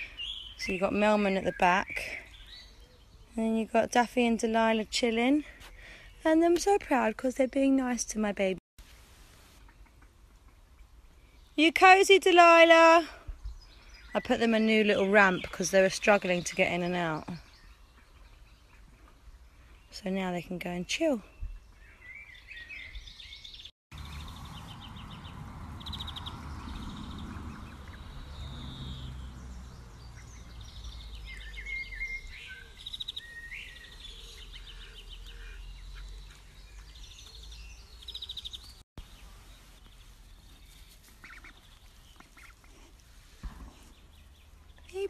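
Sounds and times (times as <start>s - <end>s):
small birds chirping trills: 0.0s - 8.1s, 9.6s - 45.0s
ducks calling: 24.0s - 29.4s, 41.1s - 42.8s.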